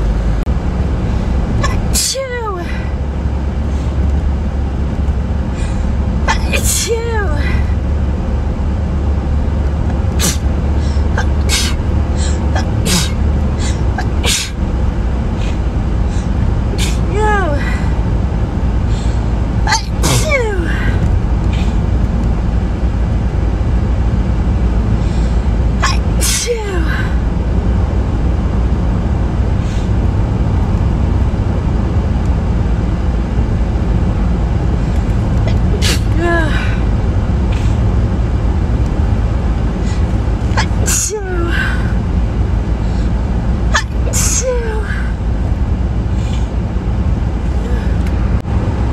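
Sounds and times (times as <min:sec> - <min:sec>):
steady low rumble: 0:00.0 - 0:48.9
catches of breath: 0:05.5 - 0:06.0, 0:10.2 - 0:14.5, 0:18.8 - 0:19.4, 0:25.0 - 0:25.6, 0:29.6 - 0:30.0, 0:42.7 - 0:43.3, 0:46.1 - 0:46.6
woman sneezing: 0:06.3 - 0:07.6, 0:10.2 - 0:14.6, 0:16.8 - 0:17.8, 0:19.7 - 0:20.9, 0:25.8 - 0:27.0, 0:35.5 - 0:36.8, 0:40.5 - 0:41.8, 0:43.8 - 0:45.1.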